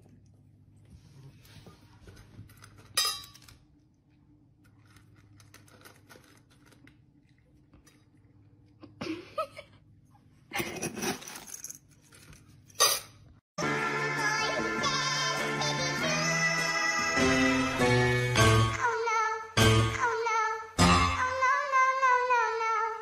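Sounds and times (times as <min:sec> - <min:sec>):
cat kibble rattling in bowls: 0:04.7 - 0:07.0.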